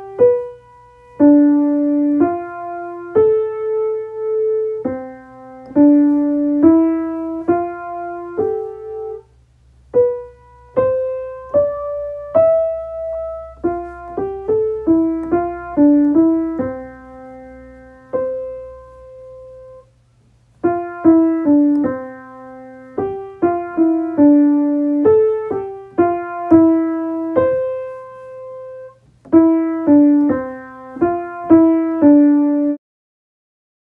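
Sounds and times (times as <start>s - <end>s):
slow piano-like melody: 0.0s - 32.8s.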